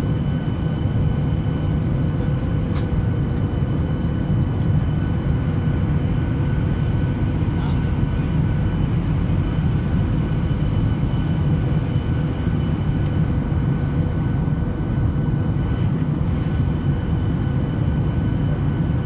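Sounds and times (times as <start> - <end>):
airplane cabin engine rumble: 0.0 - 19.0.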